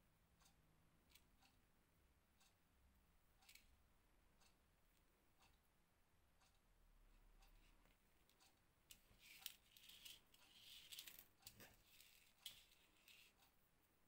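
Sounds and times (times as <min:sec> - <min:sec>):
faint rustling of crochet work: 0:07.2 - 0:13.7
light clicks of beads: 0:08.3 - 0:13.5.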